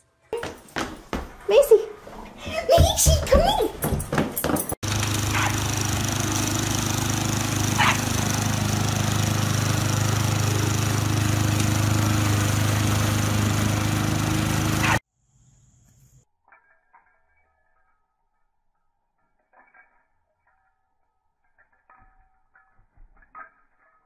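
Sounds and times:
lawn mower engine running: 4.8s - 15.0s.

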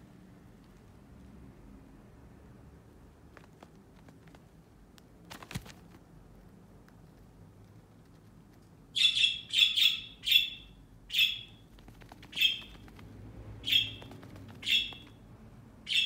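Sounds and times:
budgerigar chirping: 9.0s - 11.7s, 12.3s - 12.9s, 13.6s - 15.2s.

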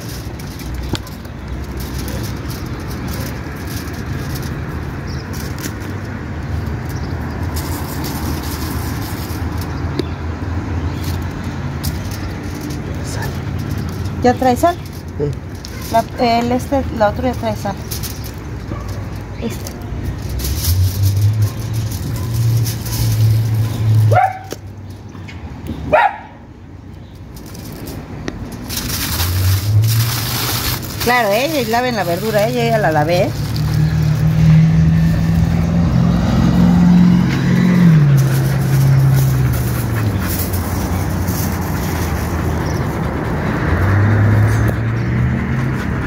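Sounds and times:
car engine and road rumble: 0.0s - 46.0s
dog barking: 24.1s - 24.6s, 25.9s - 26.4s.

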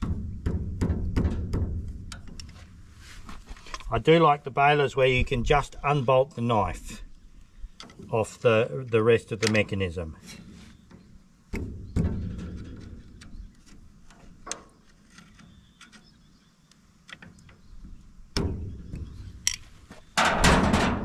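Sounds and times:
metal tool clicks and knocks: 18.4s - 19.6s.

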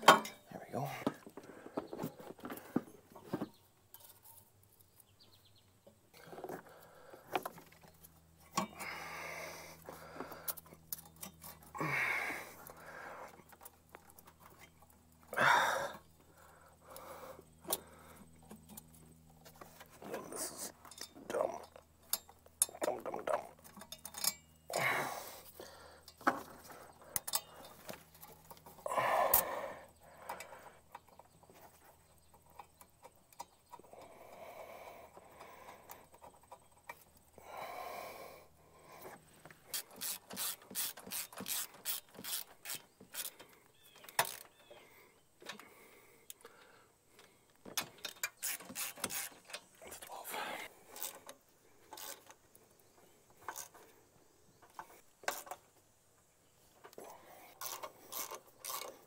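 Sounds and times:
ratchet wrench clicking: 39.7s - 43.4s, 48.1s - 49.7s, 51.9s - 52.3s, 57.6s - 58.9s.

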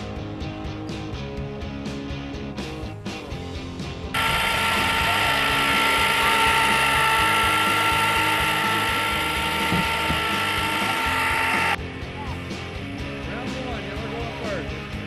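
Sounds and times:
ice cream freezer motor whining: 4.2s - 11.8s.

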